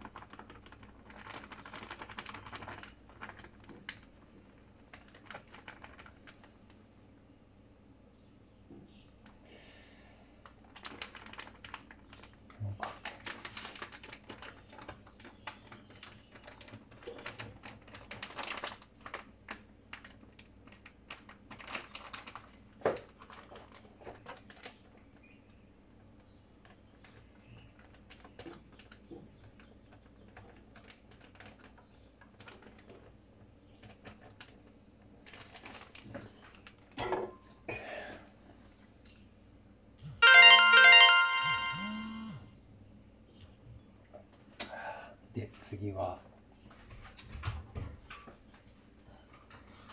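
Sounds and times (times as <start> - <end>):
plastic packaging crinkling: 0.0 - 6.8, 10.6 - 25.2, 30.4 - 33.1, 35.2 - 36.9.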